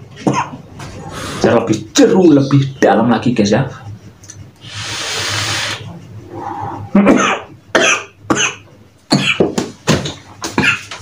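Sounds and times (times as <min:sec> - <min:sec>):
person coughing: 0:00.2 - 0:00.6, 0:07.0 - 0:09.6, 0:10.4 - 0:11.0
breathy e-cigarette draw hiss: 0:04.6 - 0:05.8.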